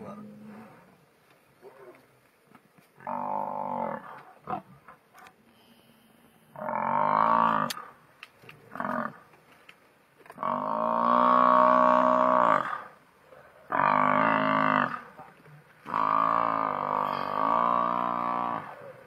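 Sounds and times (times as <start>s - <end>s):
buffalo bellowing: 3.0s - 4.7s, 6.5s - 8.0s, 10.4s - 13.0s, 13.6s - 15.2s, 15.8s - 19.0s.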